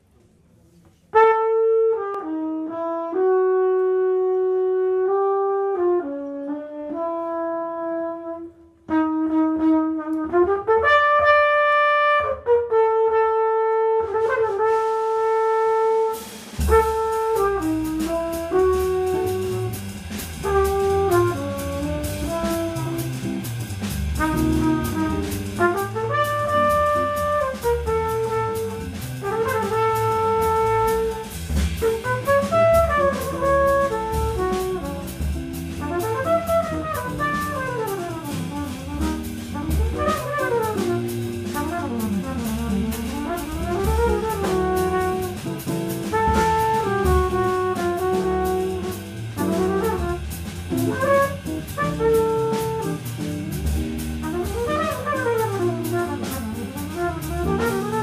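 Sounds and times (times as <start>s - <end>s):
double bass: 0.9s - 58.0s
jazz trumpet melody: 1.1s - 58.0s
drums with cymbals: 14.1s - 58.0s.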